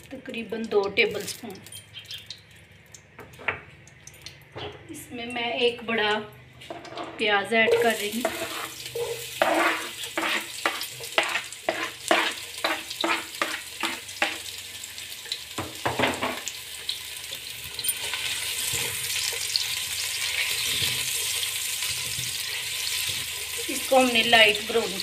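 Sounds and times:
spatula scraping in pot: 6.8s - 14.4s
onion sizzling in hot fat: 7.6s - 25.0s
knife scraping on cutting board: 7.7s - 14.0s.

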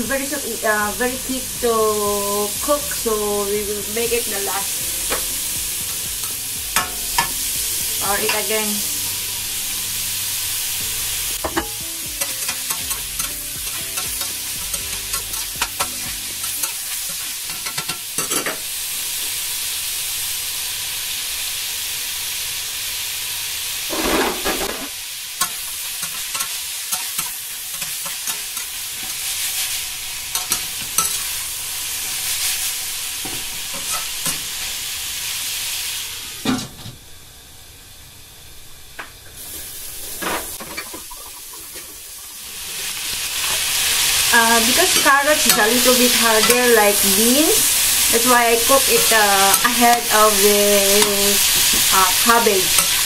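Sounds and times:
stir-fry sizzling in a wok: 0.0s - 53.0s
metal spatula scraping a wok: 23.9s - 29.6s, 30.3s - 31.4s.

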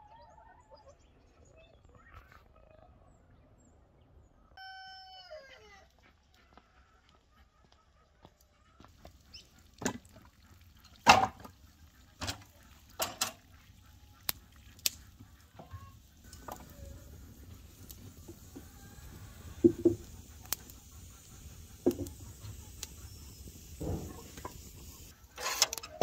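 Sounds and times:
firewood logs knocking: 19.6s - 20.6s, 21.8s - 22.2s.

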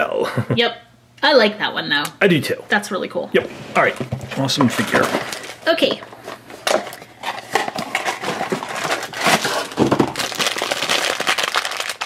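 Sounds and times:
foil bag crinkling: 4.6s - 12.0s
cardboard box opening: 6.6s - 10.7s.

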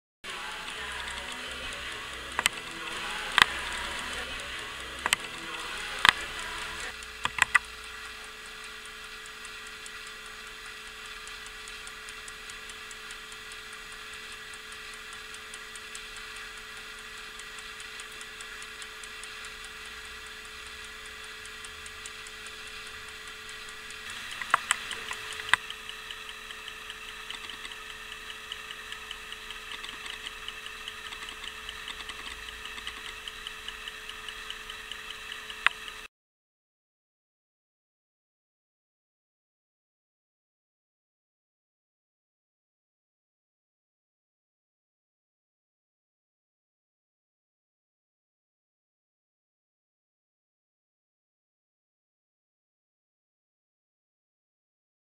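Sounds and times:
clock ticking fast: 0.2s - 36.1s
faint steady hum: 0.2s - 36.1s
sharp clicks: 0.2s - 36.1s.

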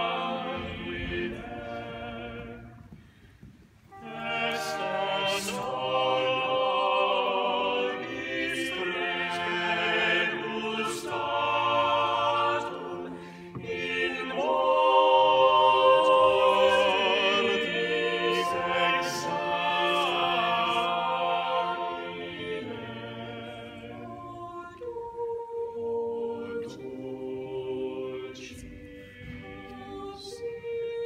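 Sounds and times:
choir singing unaccompanied: 0.0s - 3.0s, 3.9s - 31.0s.

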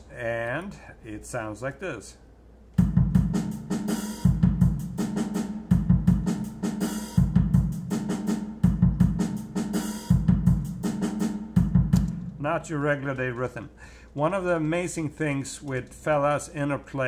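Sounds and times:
kick drum: 2.8s - 5.0s, 5.7s - 6.5s, 7.2s - 8.0s, 8.6s - 9.4s, 10.1s - 10.9s, 11.6s - 12.4s
snare drum: 2.8s - 12.4s
hi-hat ticks: 11.6s - 12.3s.

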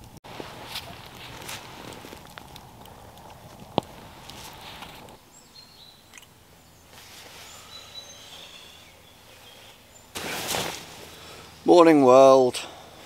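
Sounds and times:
rustling of hammock and bedding: 0.0s - 5.2s, 6.9s - 11.4s
faint high whistled birdsong: 5.2s - 10.2s.

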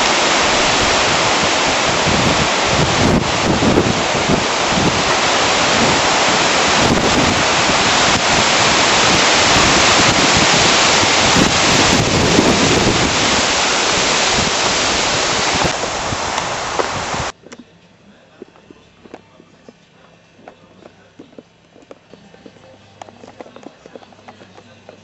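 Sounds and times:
strong wind blowing: 0.0s - 17.4s
trees thrashing: 0.0s - 17.4s
wind buffeting microphone: 0.0s - 17.4s.

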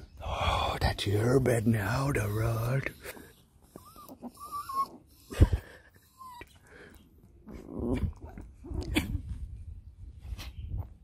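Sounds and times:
small dog whining: 3.6s - 5.4s, 6.0s - 6.6s
dog growling: 7.4s - 9.0s.

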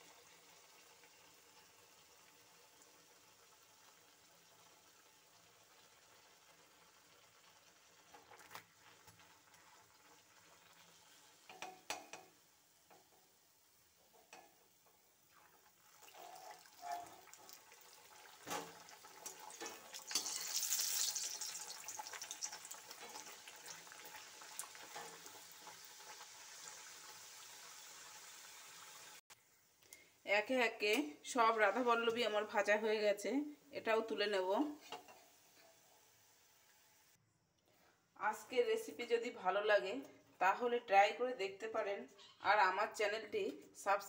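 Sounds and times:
dough deep-frying in hot oil: 0.0s - 29.6s.

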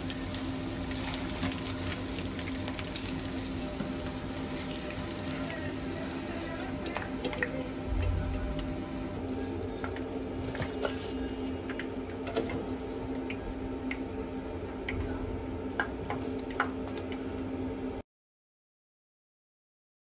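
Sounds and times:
hot oil sizzling: 0.0s - 9.2s
steady low hum: 0.0s - 15.9s.

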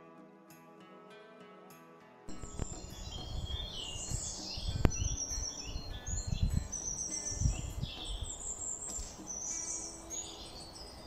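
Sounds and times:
birds chirping and whistling: 2.3s - 11.0s
wind rumbling on microphone: 2.3s - 11.0s.

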